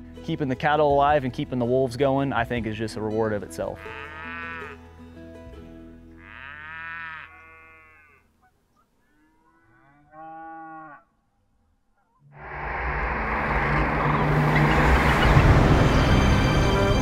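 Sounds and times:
cattle mooing: 3.8 - 4.8, 6.2 - 8.3, 9.0 - 11.2
loud rushing noise: 12.4 - 17.0.

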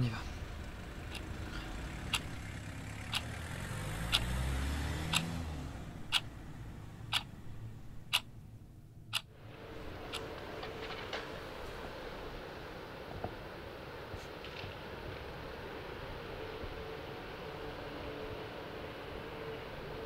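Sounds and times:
low car rumble: 0.0 - 20.0
watch ticking: 1.1 - 1.4, 2.0 - 3.4, 4.1 - 4.4, 5.1 - 5.3, 6.0 - 6.3, 7.1 - 7.3, 8.0 - 8.3.

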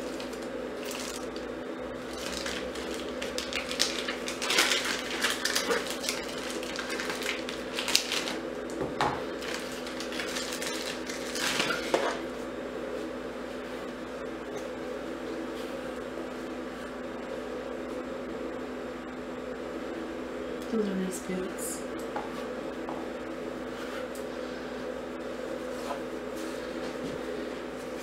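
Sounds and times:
plastic bag crinkling: 0.0 - 12.0
steady hum: 0.0 - 28.0.

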